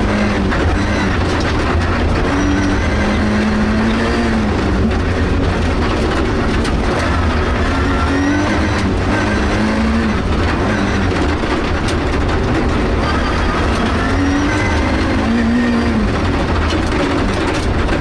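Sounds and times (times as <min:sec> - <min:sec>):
rally car engine revving: 0:00.0 - 0:18.0
tyres on gravel road noise: 0:00.0 - 0:18.0.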